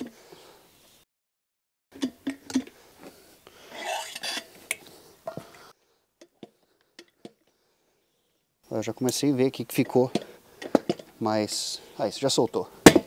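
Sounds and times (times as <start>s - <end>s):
knocks and clicks of tyre handling: 10.0s - 11.1s.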